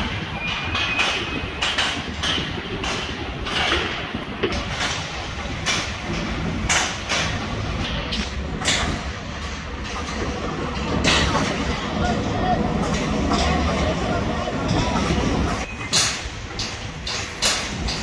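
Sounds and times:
low machinery rumble: 0.0 - 15.7.

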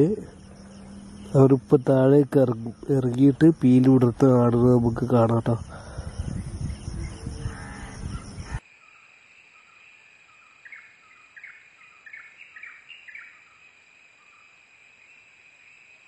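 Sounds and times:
bird calls: 0.0 - 14.6
high insect drone: 0.0 - 16.0.

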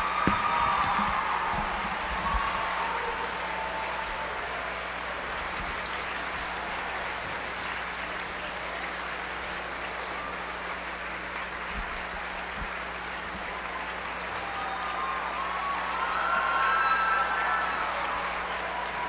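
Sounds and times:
audience applauding: 0.0 - 19.0.

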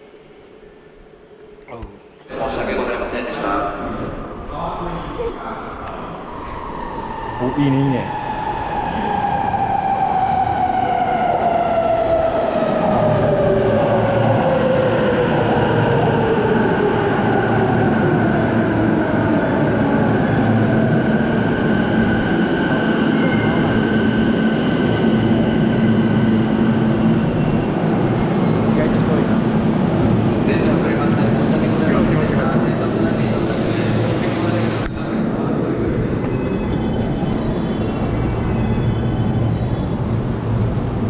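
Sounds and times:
train rumble: 19.3 - 41.0.

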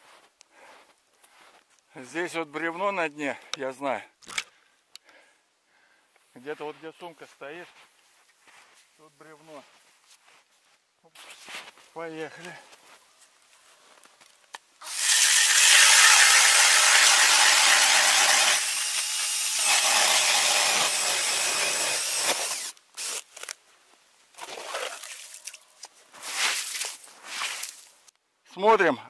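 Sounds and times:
drill driving ice auger: 14.8 - 23.3.

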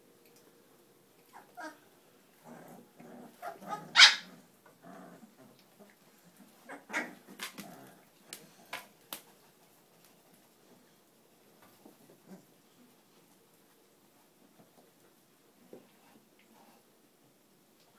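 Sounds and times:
puppy yelping: 1.3 - 1.8, 3.4 - 4.4
puppies yipping and whimpering: 3.4 - 4.4.

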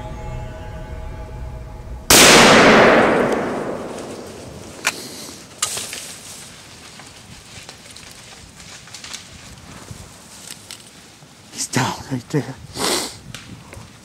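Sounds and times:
gunshot echoing through woods: 2.1 - 5.9.

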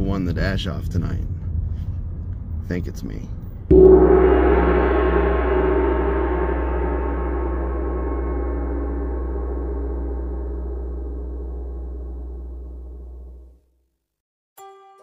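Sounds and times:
gong-like ringing tone: 3.7 - 13.4
low steady drone: 3.7 - 13.4.

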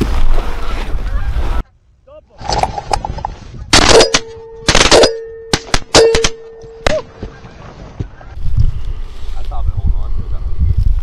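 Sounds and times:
shotgun blasts: 3.7 - 7.0.

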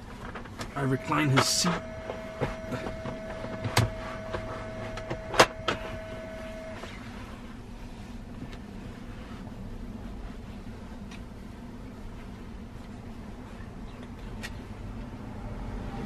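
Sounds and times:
low steady hum: 0.0 - 16.0
faint steady tone: 0.6 - 8.2.

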